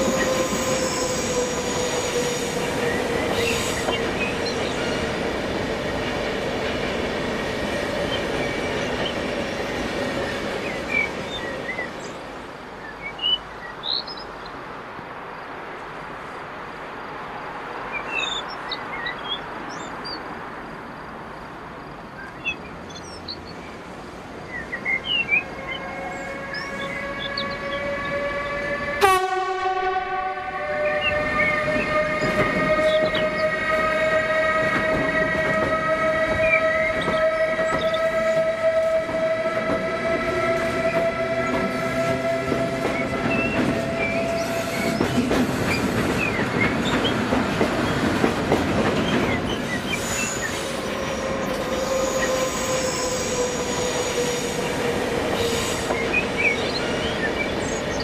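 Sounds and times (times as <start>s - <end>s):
wheels clattering on rail: 34.5s - 52.4s.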